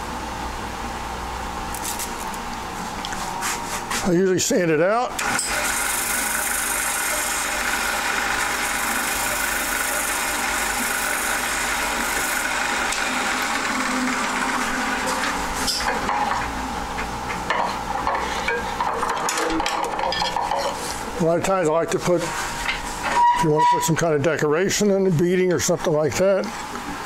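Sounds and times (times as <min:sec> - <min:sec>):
wood lathe running: 0:05.2 - 0:16.1
sandpaper hissing on spinning wood: 0:05.5 - 0:15.2.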